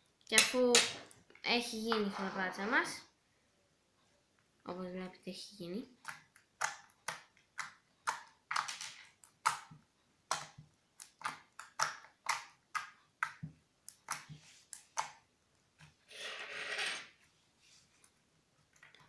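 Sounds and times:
wet slime squelch: 0:05.9 - 0:16.0.

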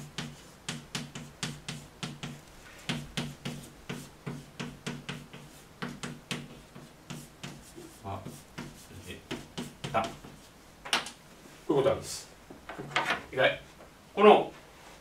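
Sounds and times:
chalk tapping on blackboard: 0:00.0 - 0:10.5.

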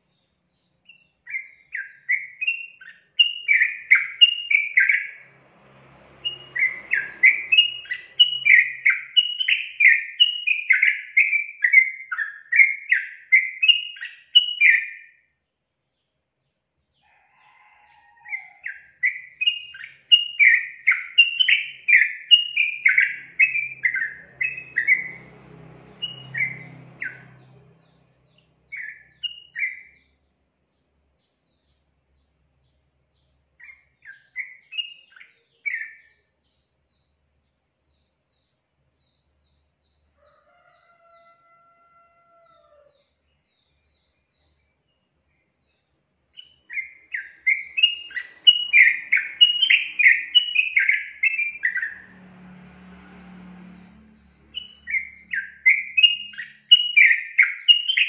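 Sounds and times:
bird chattering song: 0:00.0 - 0:05.2, 0:06.3 - 0:15.2, 0:18.4 - 0:31.9, 0:33.2 - 0:37.2, 0:46.4 - 0:52.0, 0:54.2 - 0:58.0.

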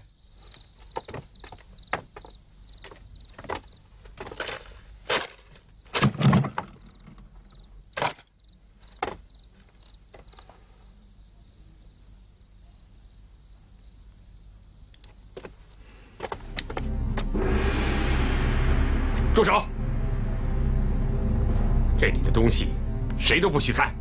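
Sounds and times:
rustling: 0:03.0 - 0:06.2
wooden chest lock clinking: 0:06.0 - 0:08.4.

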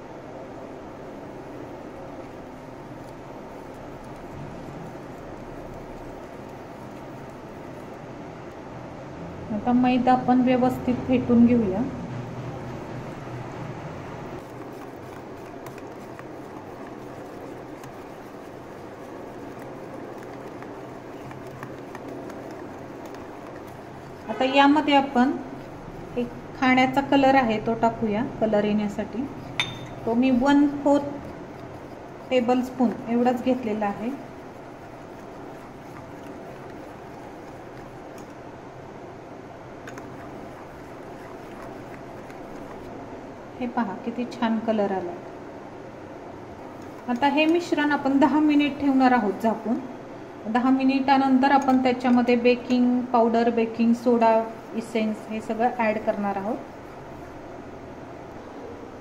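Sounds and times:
whisk beating batter: 0:00.9 - 0:08.6, 0:14.4 - 0:38.7, 0:39.8 - 0:43.8, 0:46.2 - 0:49.9, 0:50.7 - 0:53.0, 0:53.9 - 0:58.6
whisk clicking against glass bowl: 0:14.4 - 0:24.8.

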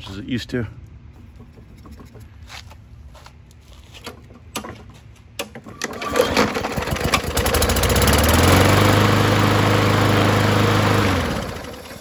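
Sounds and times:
lawn mower engine running: 0:04.0 - 0:12.0
recoil starter pull: 0:05.4 - 0:08.8.

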